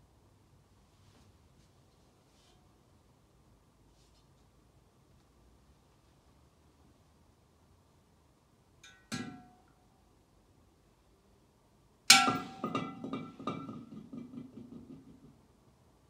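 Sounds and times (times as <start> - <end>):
loud clattering strike: 12.1 - 14.0.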